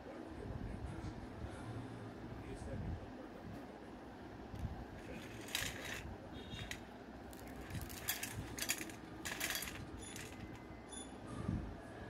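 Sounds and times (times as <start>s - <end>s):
crisp snacks rattling on steel plate: 5.0s - 6.0s, 6.6s - 10.6s.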